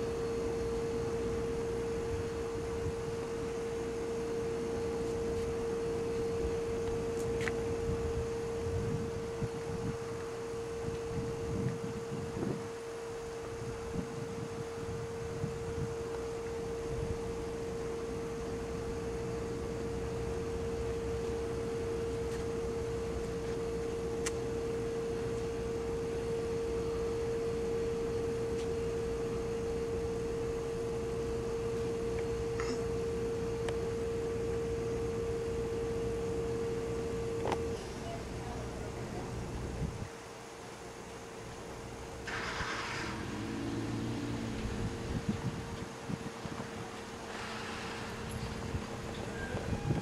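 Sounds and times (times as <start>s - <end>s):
steady single-pitch tone: 0.0s - 41.5s, 43.3s - 50.0s
low rumble: 43.1s - 50.0s.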